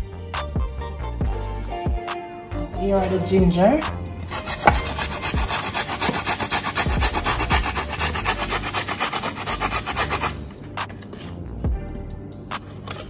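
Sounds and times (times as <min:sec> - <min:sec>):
ginger rasping on a metal grater: 0:04.3 - 0:10.6.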